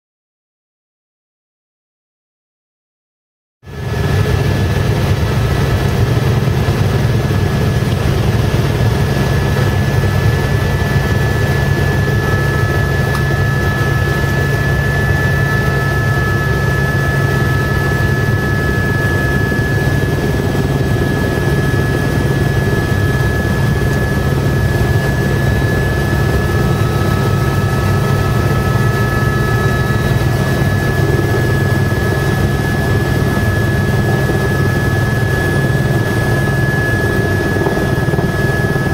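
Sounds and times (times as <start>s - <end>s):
helicopter rotor and engine drone: 3.6s - 38.9s
high whine: 3.7s - 38.9s
lower whine: 3.7s - 38.9s.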